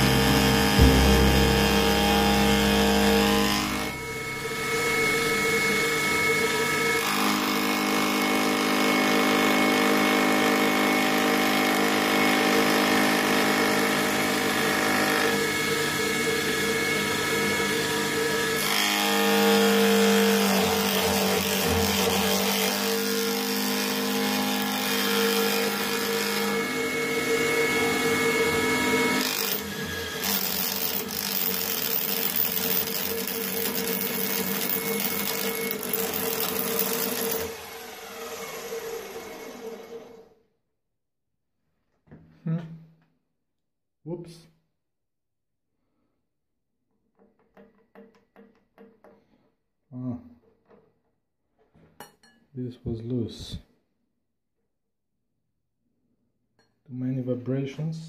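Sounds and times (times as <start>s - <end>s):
milling machine cutting whine: 0.0s - 7.1s.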